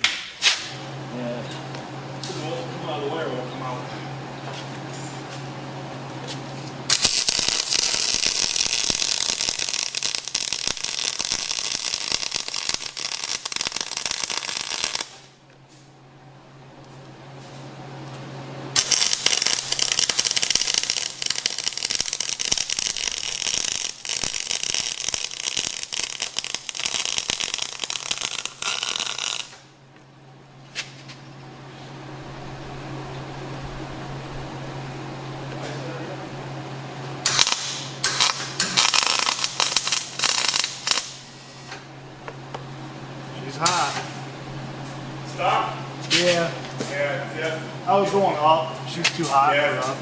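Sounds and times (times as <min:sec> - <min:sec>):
welding arc crackling: 0:06.9 - 0:15.3, 0:18.7 - 0:29.7, 0:37.2 - 0:41.8, 0:43.4 - 0:44.1.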